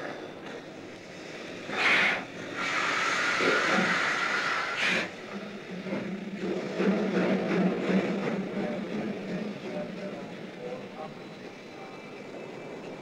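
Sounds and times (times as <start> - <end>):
steam locomotive releasing steam: 0.9 - 5.2.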